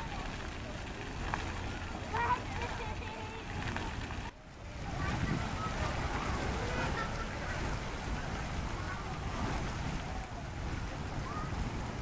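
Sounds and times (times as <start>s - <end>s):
faint children's voices: 0.0s - 12.0s
fountain jets splashing on paving: 0.0s - 12.0s
wind rumbling on microphone: 0.0s - 12.0s.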